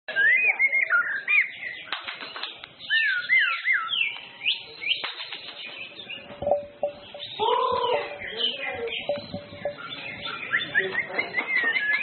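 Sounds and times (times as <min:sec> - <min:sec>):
bird singing whistled notes: 0:00.1 - 0:12.0
bird chattering notes: 0:02.9 - 0:12.0.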